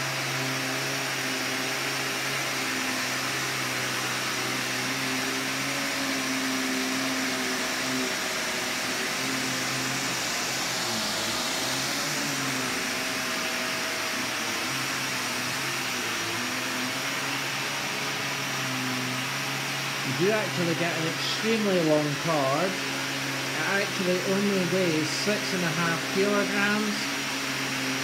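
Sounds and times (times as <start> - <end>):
vacuum cleaner running on carpet: 0.0 - 28.0.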